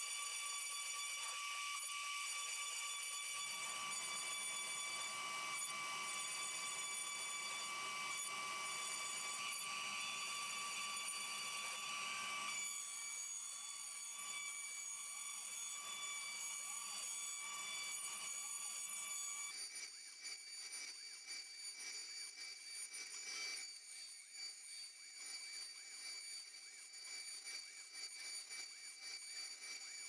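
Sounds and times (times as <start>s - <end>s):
router bit cutting wood: 0.0s - 19.6s
cnc router spindle whining: 0.0s - 30.0s.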